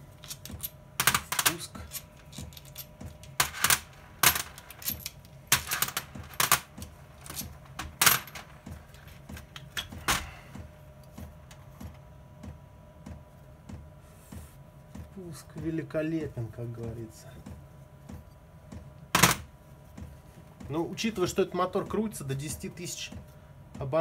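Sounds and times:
metal parts clinking: 0.1s - 10.3s.

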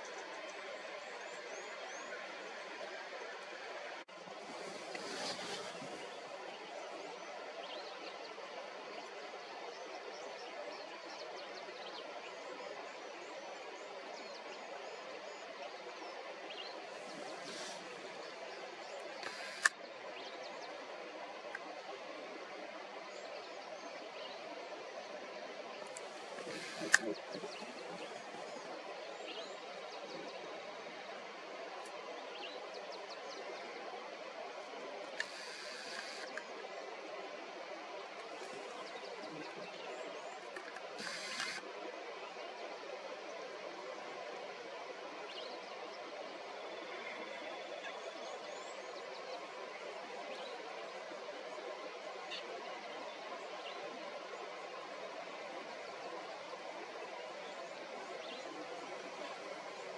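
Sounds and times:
outdoor background rush: 0.0s - 59.9s
steady background hiss: 0.0s - 59.9s.

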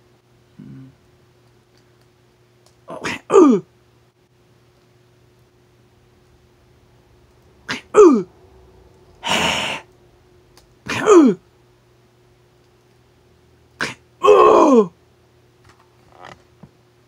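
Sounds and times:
man making fight cries: 2.9s - 3.6s, 7.7s - 8.3s, 10.9s - 11.4s, 13.8s - 15.0s
breathy hiss: 9.2s - 10.0s.

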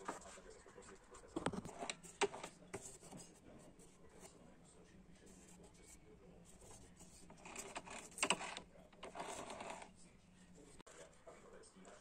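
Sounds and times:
handling rustling and scraping: 0.0s - 4.5s, 5.2s - 10.0s.

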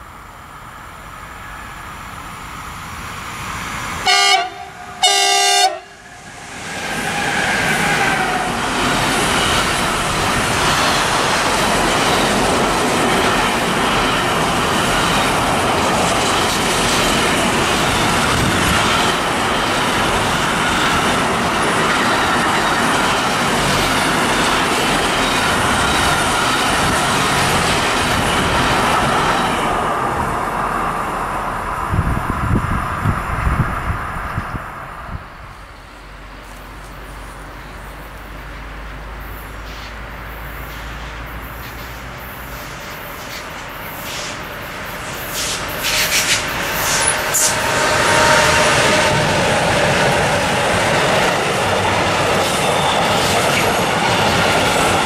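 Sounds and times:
train wheels roaring on rail: 0.0s - 55.0s
locomotive horn blasts: 4.0s - 6.0s
wagons clickety-clack over track: 48.5s - 55.0s.

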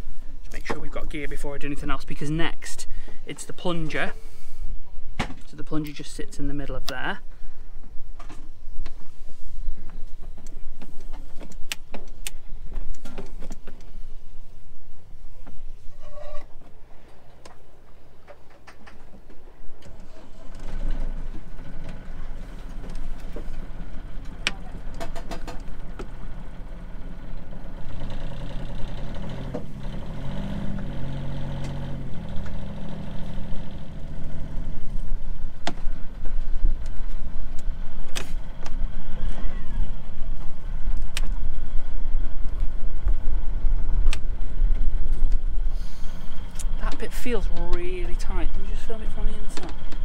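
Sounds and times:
diesel engine idling: 20.1s - 50.0s.

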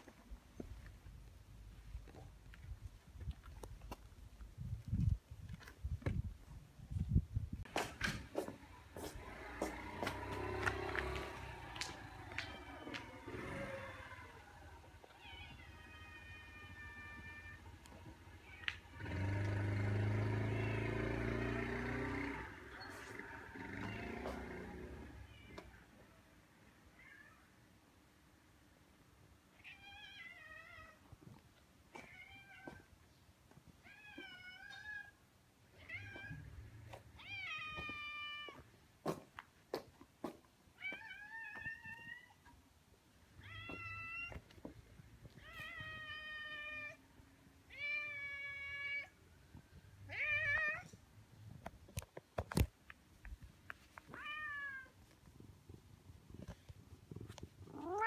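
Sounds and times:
cat meowing: 47.7s - 49.2s, 50.1s - 51.0s, 54.1s - 55.0s, 57.7s - 58.0s.

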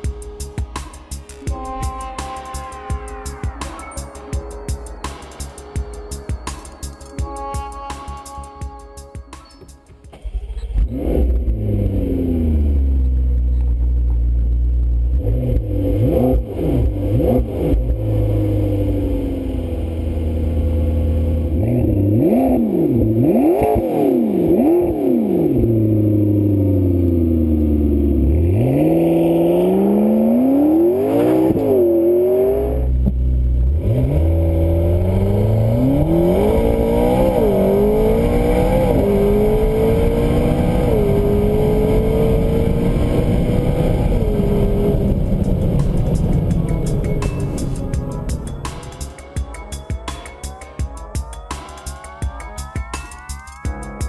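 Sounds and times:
car engine revving and accelerating: 10.1s - 49.3s.

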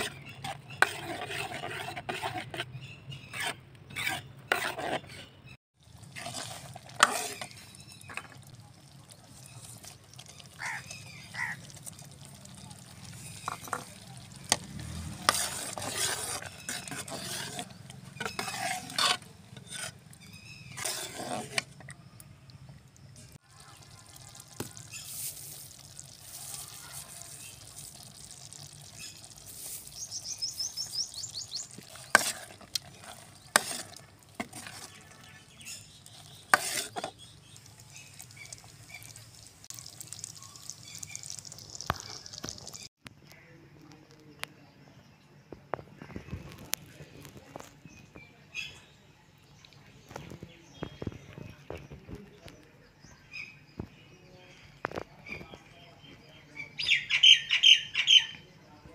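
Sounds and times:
metal ladle scraping a pot: 0.0s - 8.6s, 9.3s - 22.0s, 23.9s - 42.8s.

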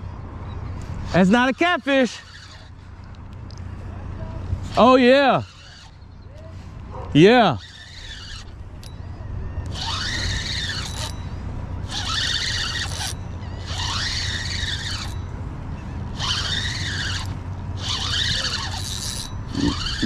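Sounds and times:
spinning reel whining: 1.0s - 2.9s, 4.6s - 6.3s, 7.2s - 15.4s, 16.0s - 20.0s.

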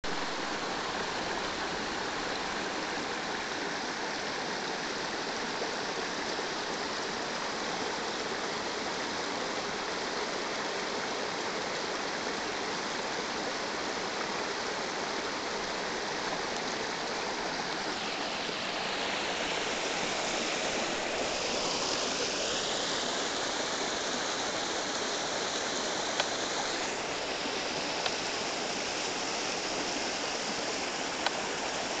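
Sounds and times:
water splashing over rocks: 11.8s - 32.0s
faint clicks: 26.1s - 26.4s.

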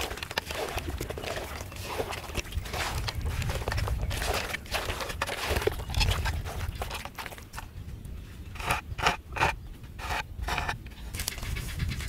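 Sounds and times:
hands rubbing meat in a pot: 0.0s - 7.6s.

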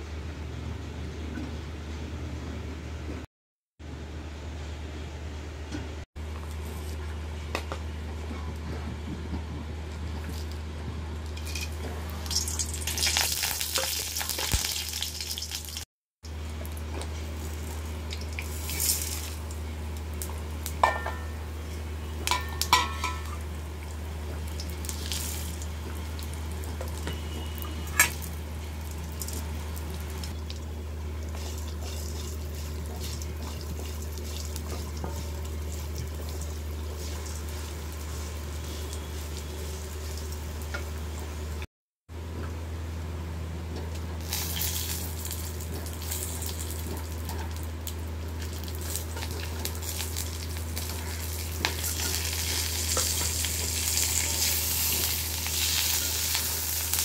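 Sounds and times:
spices sizzling in oil: 11.4s - 41.6s, 44.2s - 57.0s.

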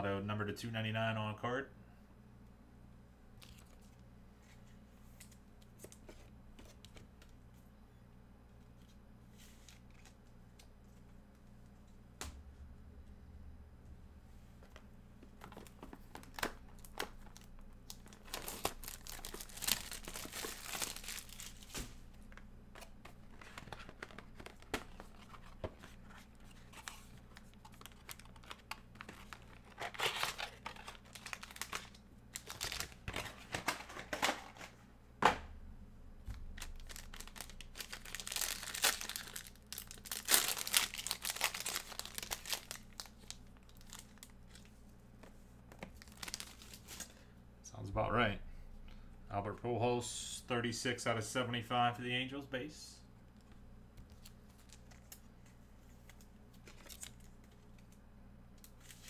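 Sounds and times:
cards being handled: 14.6s - 34.8s
packaging crinkling and tearing: 15.4s - 34.3s, 36.6s - 44.7s, 45.9s - 47.2s, 56.1s - 58.0s.

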